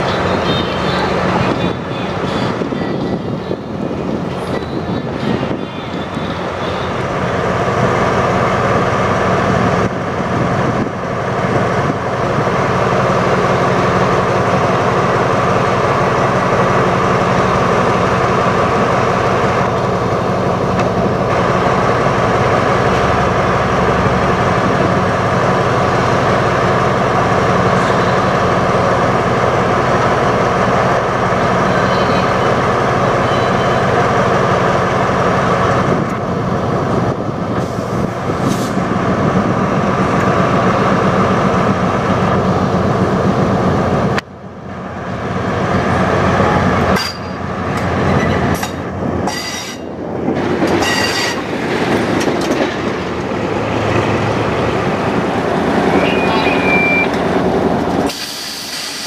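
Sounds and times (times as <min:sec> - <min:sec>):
diesel train engine droning: 0:00.0 - 0:59.0.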